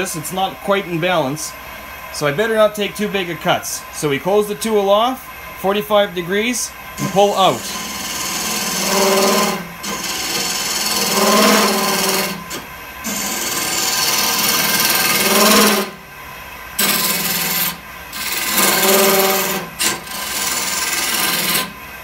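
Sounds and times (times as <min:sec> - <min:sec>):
buzzing chatter of vibrating wood: 0:07.0 - 0:15.9, 0:16.8 - 0:21.7
gouge cutting wood on lathe: 0:07.0 - 0:16.0, 0:16.8 - 0:21.7.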